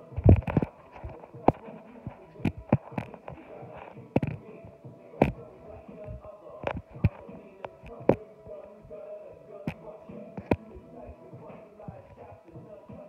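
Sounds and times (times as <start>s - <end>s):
phone handling knocks and rubbing: 0.2s - 4.4s.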